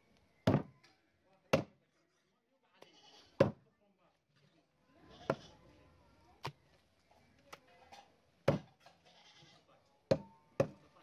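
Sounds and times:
knife chopping on wooden board: 0:10.1 - 0:10.8.

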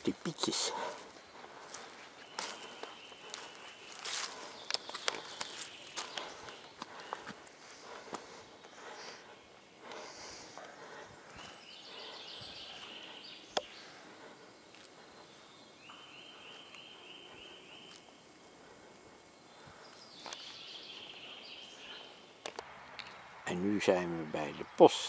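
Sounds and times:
small songbirds singing: 0:00.0 - 0:25.0.

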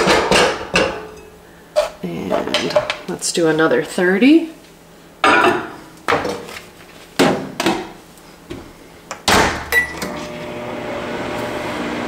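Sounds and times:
microwave humming: 0:09.2 - 0:12.0.

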